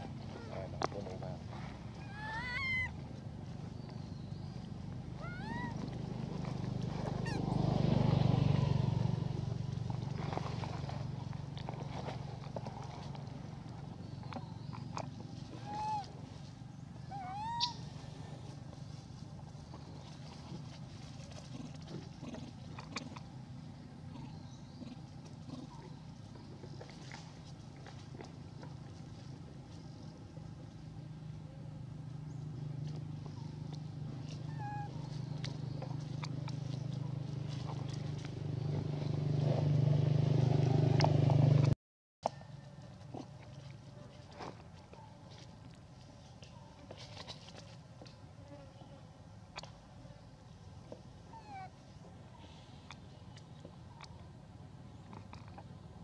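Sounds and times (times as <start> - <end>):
macaque coo: 0.0 - 0.8, 1.9 - 3.0, 5.2 - 5.9, 15.6 - 16.2, 17.1 - 17.8, 34.5 - 35.1, 51.3 - 51.7
vehicle engine passing: 0.0 - 15.6, 16.3 - 41.8.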